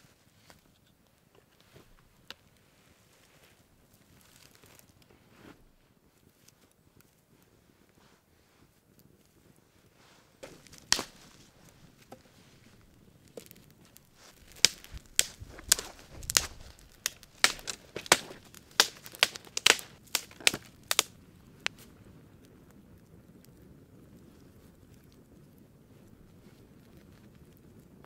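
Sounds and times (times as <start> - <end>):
sharp cracks and knocks: 10.4 - 21.8.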